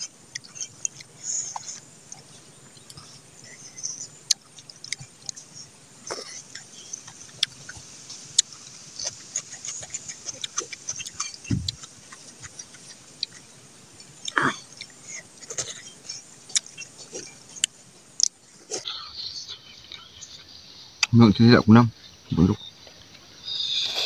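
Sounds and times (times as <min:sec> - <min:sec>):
chewing and lip smacks: 0:00.0 - 0:18.9
low thump: 0:11.5 - 0:11.8.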